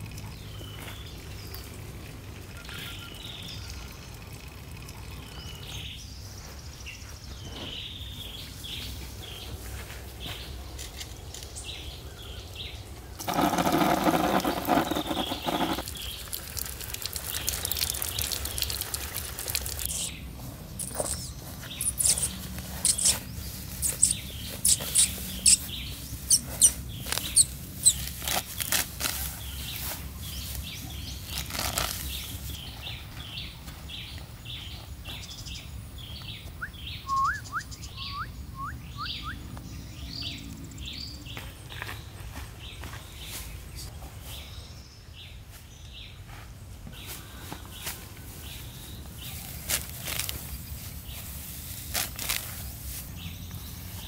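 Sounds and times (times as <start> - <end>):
birds chirping: 0.0 - 46.2
rough scraping: 13.2 - 16.1
grass snapping and ripping: 26.5 - 32.3, 49.5 - 53.1.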